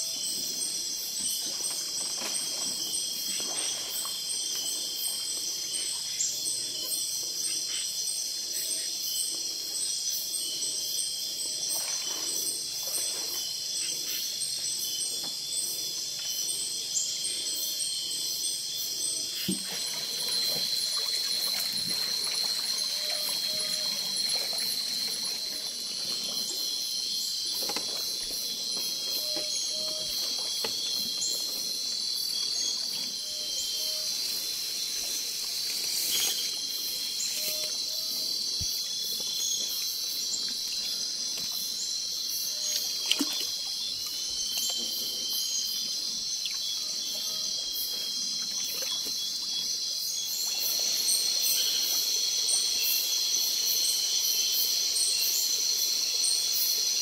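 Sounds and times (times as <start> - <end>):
forest insects chorus: 0.0 - 57.0
water trickling: 19.7 - 26.8.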